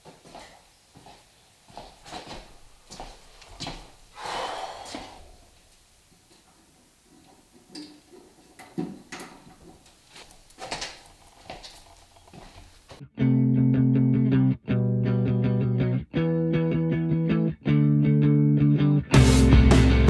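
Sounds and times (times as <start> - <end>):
footsteps: 0.0 - 13.0.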